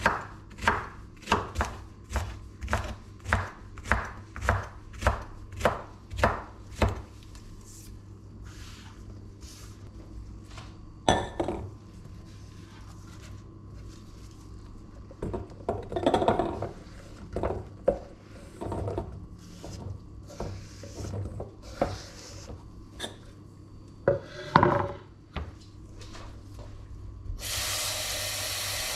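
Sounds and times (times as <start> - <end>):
knife chopping on wooden board: 0.0 - 7.0.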